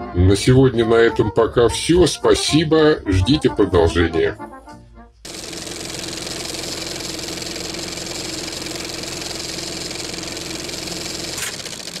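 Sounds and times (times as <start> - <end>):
film projector whirring and rattling: 5.3 - 12.0.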